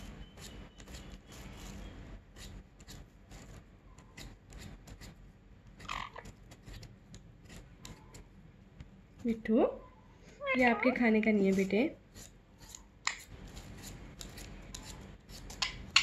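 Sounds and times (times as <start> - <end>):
peeler scraping potato: 0.0 - 5.2, 5.8 - 8.3, 10.9 - 16.0.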